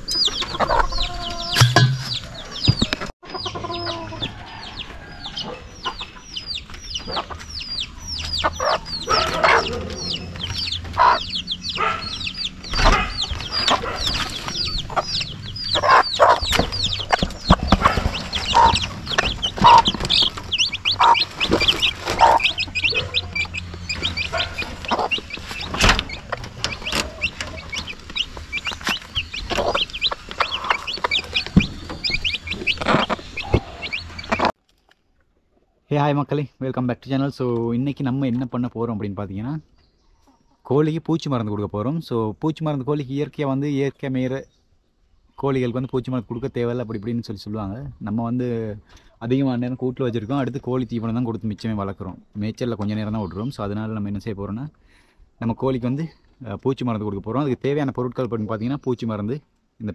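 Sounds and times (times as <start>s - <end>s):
chicks peeping: 0.0s - 34.6s, 45.4s - 54.7s
hen clucking: 0.0s - 34.6s
sharp knocks: 1.6s - 3.0s.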